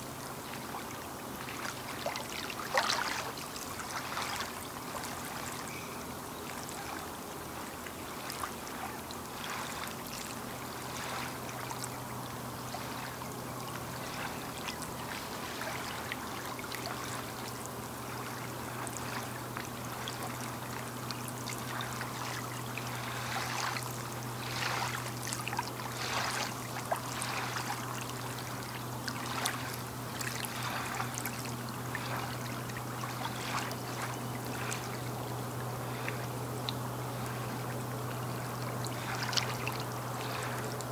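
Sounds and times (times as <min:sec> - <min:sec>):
small waves lapping: 0:00.0 - 0:40.9
steady low hum: 0:00.0 - 0:40.9
water splashes: 0:00.0 - 0:40.9.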